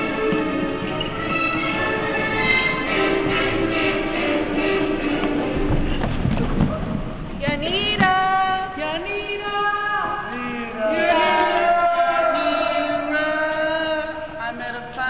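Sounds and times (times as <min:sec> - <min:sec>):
young voices singing together: 0:07.4 - 0:15.0.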